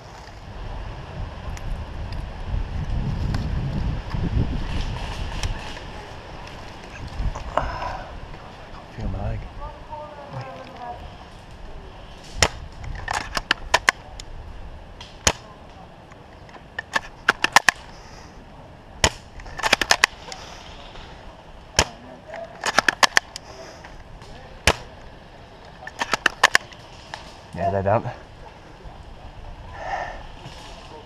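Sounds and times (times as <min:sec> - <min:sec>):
airsoft guns firing: 0:21.8 - 0:22.0, 0:22.6 - 0:23.3, 0:24.6 - 0:25.0.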